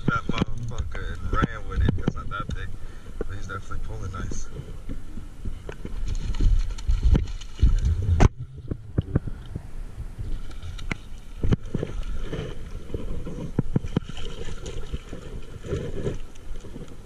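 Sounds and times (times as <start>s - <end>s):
wind rumble on microphone: 0.0s - 17.0s
fish splashing in water: 5.8s - 9.6s, 10.4s - 17.0s.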